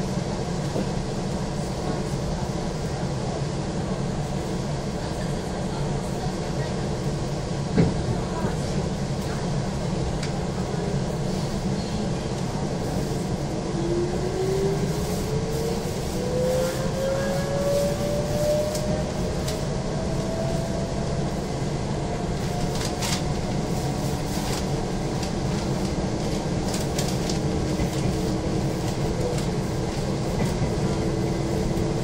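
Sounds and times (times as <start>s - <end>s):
train running rumble: 0.0s - 32.0s
electric train whine rising: 13.5s - 21.4s.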